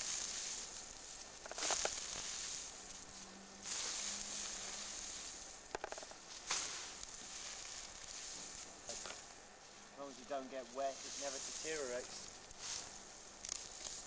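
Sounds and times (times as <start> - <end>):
dry straw rustling and crackling: 0.0 - 14.0.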